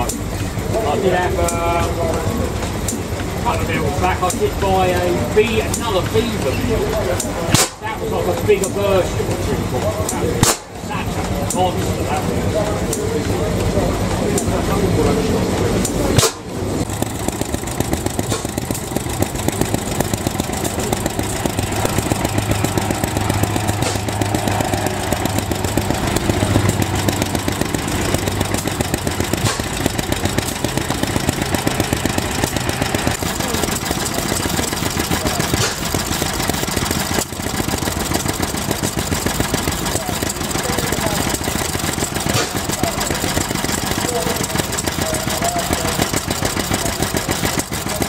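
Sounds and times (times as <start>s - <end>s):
stationary engines running: 0.0s - 48.0s.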